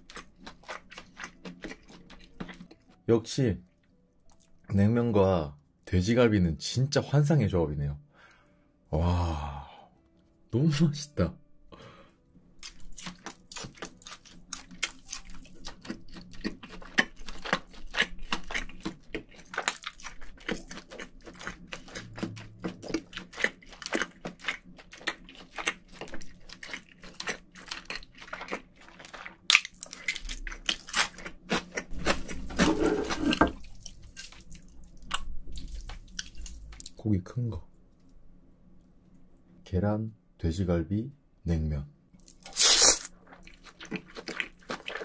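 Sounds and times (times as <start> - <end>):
close chewing with mouth clicks: 0.0 - 3.0, 12.6 - 37.0, 42.2 - 45.0.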